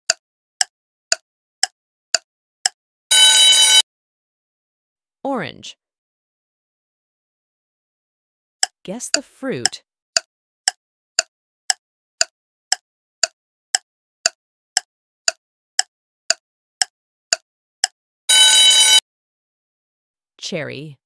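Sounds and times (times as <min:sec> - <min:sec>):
clock ticking: 0:00.0 - 0:02.8, 0:08.6 - 0:18.0
alarm clock ringing: 0:03.1 - 0:03.8, 0:18.3 - 0:19.0.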